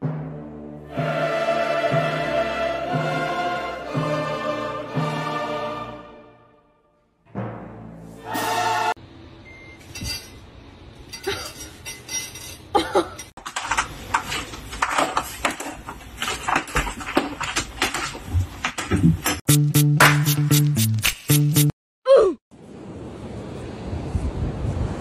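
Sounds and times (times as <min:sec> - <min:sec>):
music: 0:00.0 - 0:09.0, 0:19.5 - 0:21.7.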